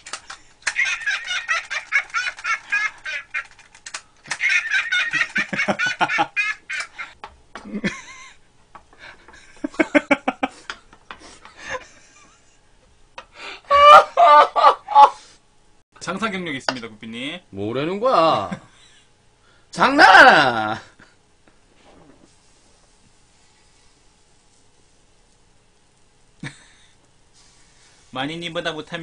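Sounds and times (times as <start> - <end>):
people laughing hard: 0.7 - 3.5, 4.3 - 8.4, 13.7 - 15.2.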